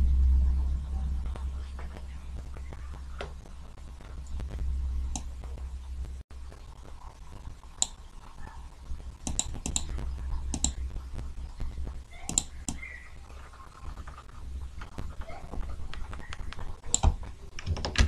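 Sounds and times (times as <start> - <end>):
steady low hum: 0.0 - 17.9
computer mouse clicks: 5.1 - 5.3, 7.8 - 8.0, 9.2 - 10.8, 12.2 - 13.0, 15.8 - 18.0.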